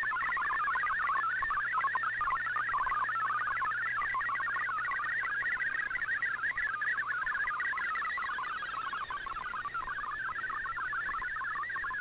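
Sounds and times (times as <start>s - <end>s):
warbling digital data tones: 0.0s - 12.0s.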